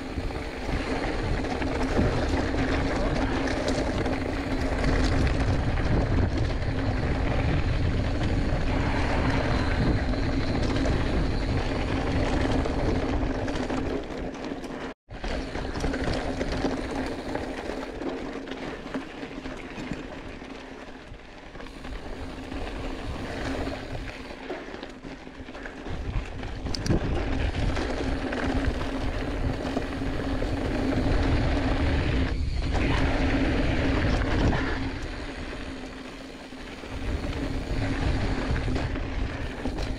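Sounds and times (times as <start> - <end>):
wind rushing over microphone: 0.0 - 13.8, 25.8 - 39.9
steady bike hum: 0.0 - 39.9
tyres rumbling on gravel: 0.0 - 39.9.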